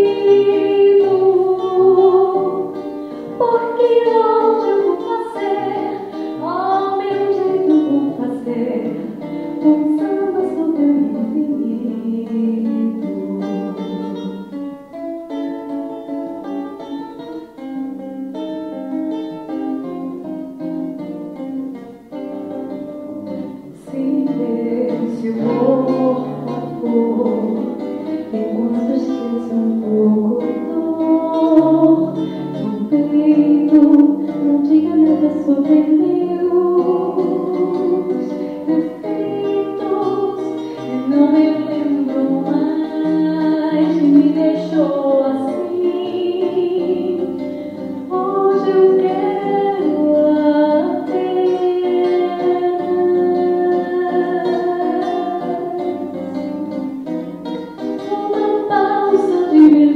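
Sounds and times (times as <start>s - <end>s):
woman singing: 0.0s - 14.4s, 23.1s - 56.9s, 57.8s - 59.9s
acoustic guitar: 0.0s - 59.9s.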